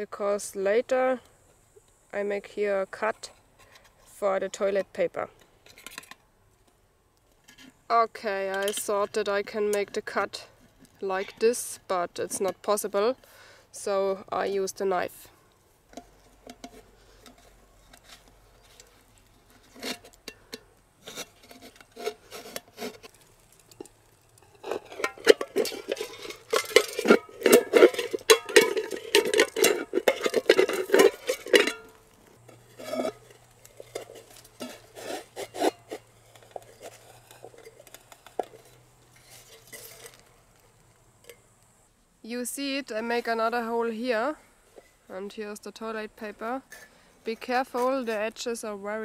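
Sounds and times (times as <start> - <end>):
knife scraping tin can: 16.6 - 40.3
rasping metallic scraping strokes: 21.0 - 23.8, 24.4 - 40.3.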